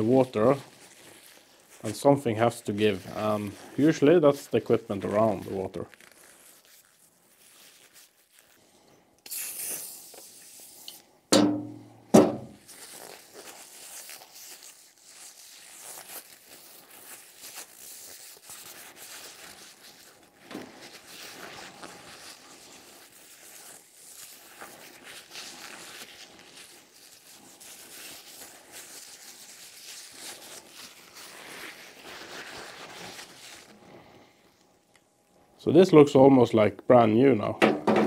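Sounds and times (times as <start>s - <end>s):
paper towel rubbing and rustling: 0.0s - 8.7s, 12.4s - 34.1s
aerosol spray can hissing: 9.2s - 11.0s
sharp knocks: 11.3s - 12.6s, 37.6s - 38.0s.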